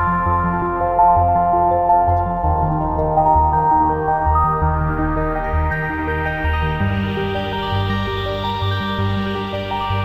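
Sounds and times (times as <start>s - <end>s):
instrumental relaxation music: 0.0s - 10.0s.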